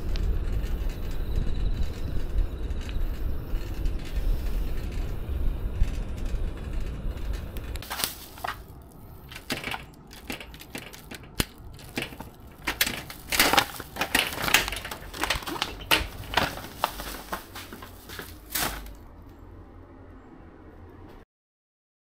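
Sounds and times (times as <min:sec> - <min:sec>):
plastic bag rustling: 0:07.8 - 0:19.1
door knob turning: 0:09.2 - 0:16.5.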